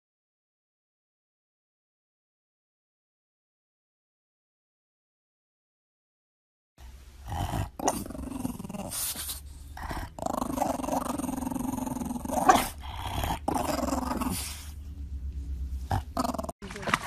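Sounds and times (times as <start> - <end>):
dog growling: 7.2 - 15.0, 15.7 - 16.6.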